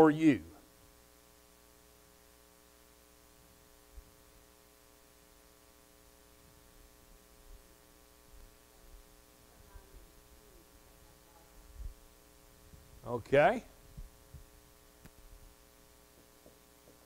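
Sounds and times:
electrical mains hum: 0.0 - 17.0.

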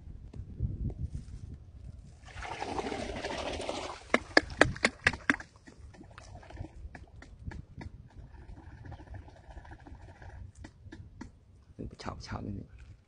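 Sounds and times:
water sloshing and splashing: 2.2 - 7.0.

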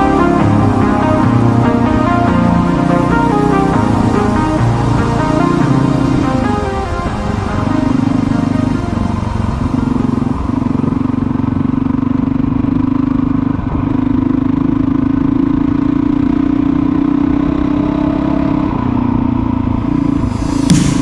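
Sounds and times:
motorcycle engine running: 7.2 - 20.8.

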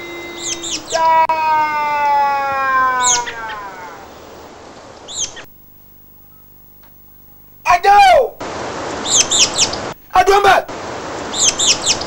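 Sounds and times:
electronic tone sliding down: 0.0 - 1.0
high bird-like chirps: 0.0 - 1.0, 3.0 - 3.6, 5.0 - 5.5, 9.0 - 9.9, 11.3 - 12.0
faint hum: 0.0 - 12.0.

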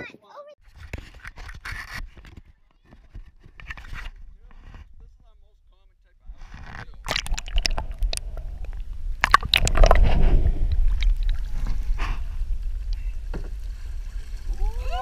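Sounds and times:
water sloshing and splashing: 6.4 - 15.0.

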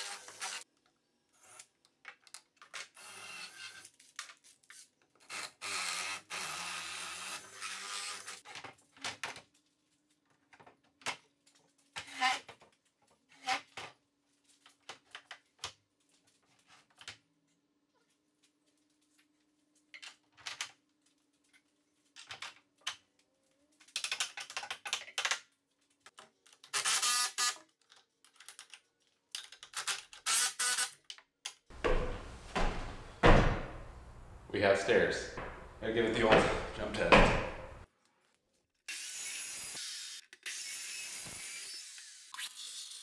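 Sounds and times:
boots thudding on wooden steps: 31.7 - 34.3, 35.4 - 37.8
metal and wood clicks and knocks: 35.4 - 37.8.

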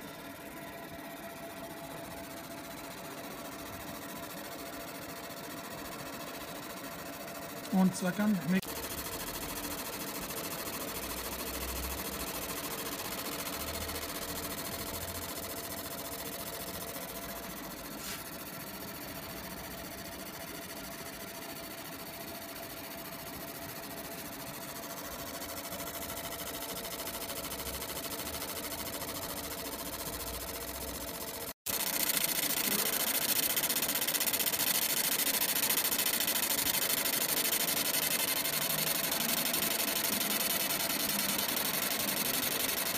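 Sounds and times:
laser machine humming: 0.0 - 42.9.

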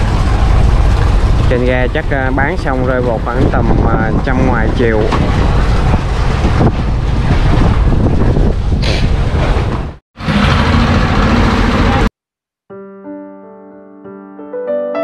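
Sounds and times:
wind buffeting microphone: 0.0 - 10.0
boat engine running: 0.0 - 12.1
soft piano music: 12.7 - 15.0.

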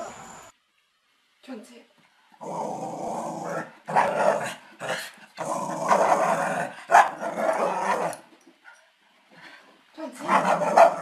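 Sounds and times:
small dog growling: 2.4 - 8.2.

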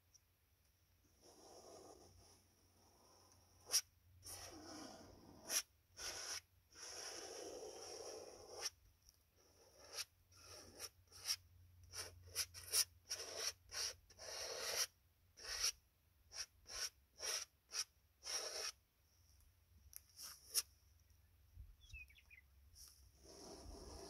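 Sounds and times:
paintbrush scrubbing on canvas: 16.4 - 18.8, 22.8 - 24.0.

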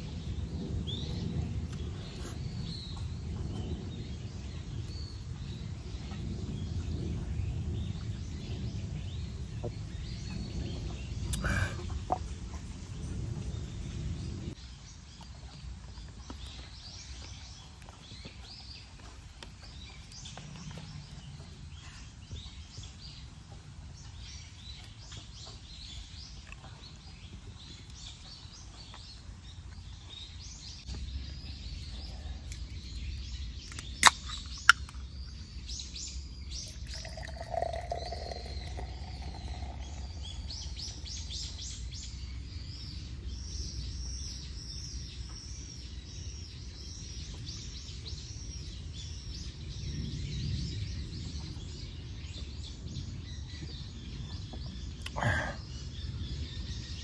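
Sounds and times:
small birds chirping: 0.0 - 57.0
sharp loud clicks: 33.7 - 35.0.

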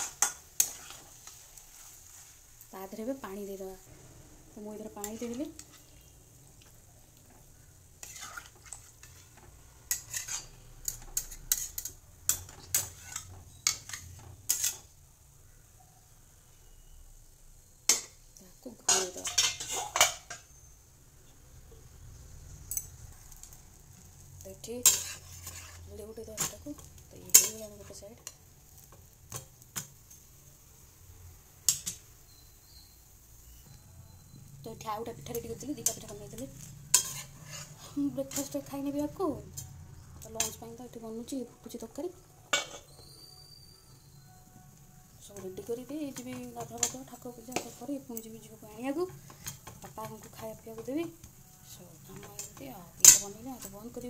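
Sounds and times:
metal spatula scraping a metal pan: 0.0 - 2.4, 4.5 - 6.2, 7.3 - 15.0, 18.8 - 20.7, 24.6 - 30.2, 31.7 - 40.8, 42.5 - 44.4, 45.4 - 50.9, 52.1 - 54.0
pancake sizzling: 0.0 - 54.0.

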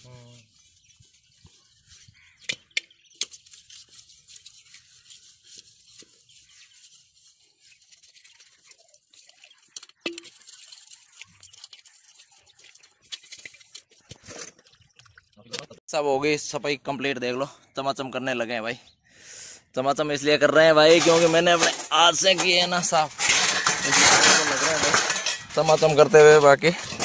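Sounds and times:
utensils being scrubbed: 3.2 - 14.4, 20.8 - 27.0
utensils clinking: 20.8 - 27.0.

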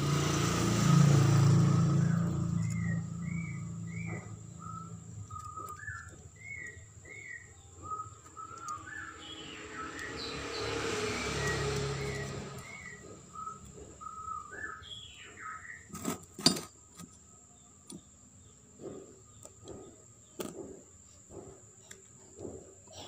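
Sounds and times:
small birds chirping: 0.5 - 23.0
sharp metallic clicks: 2.4 - 10.3.

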